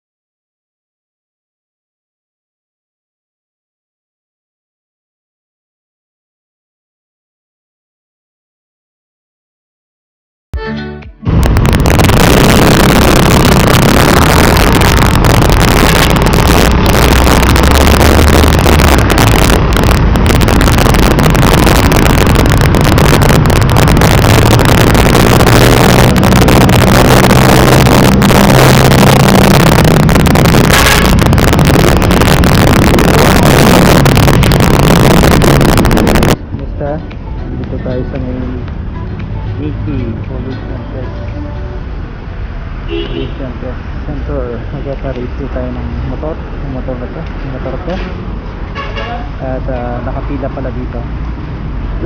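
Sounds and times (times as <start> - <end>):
wind and road rush: 11.2 - 52.0.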